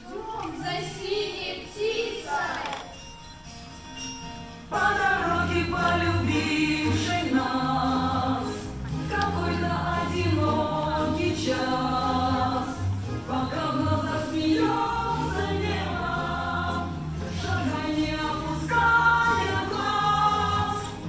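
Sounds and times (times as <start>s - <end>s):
choir singing held notes: 4.7s - 21.0s.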